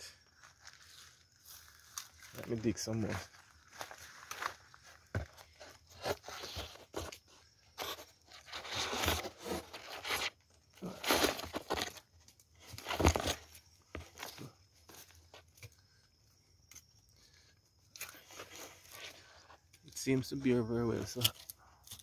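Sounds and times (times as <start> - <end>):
machete scraping into soil: 3.7 - 12.0, 17.9 - 19.5.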